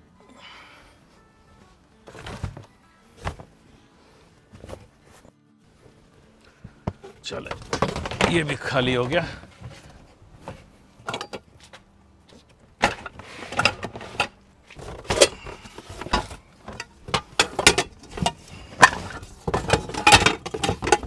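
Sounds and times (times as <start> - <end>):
plastic bin and cardboard handling: 2.0 - 3.5, 4.5 - 6.0, 6.7 - 21.0
metal pots and pans clattering: 7.5 - 8.4, 12.8 - 21.0.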